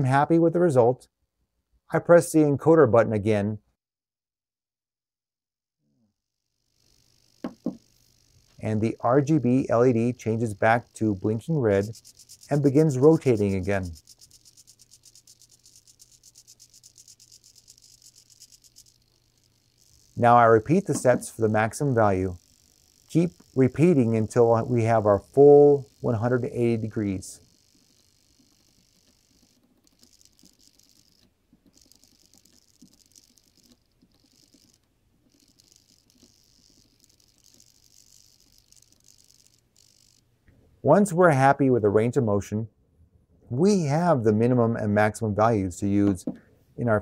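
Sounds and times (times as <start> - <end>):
servo ticking: 6.7 - 40.3
rotary knob clicking: 7.3 - 8.7, 10.2 - 26.0, 26.8 - 40.3.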